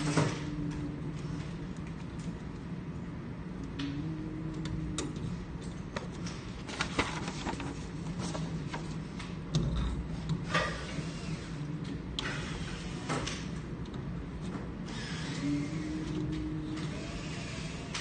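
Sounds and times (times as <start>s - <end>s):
steady low hum: 0.0s - 18.0s
wires rustling and scraping: 4.6s - 13.6s.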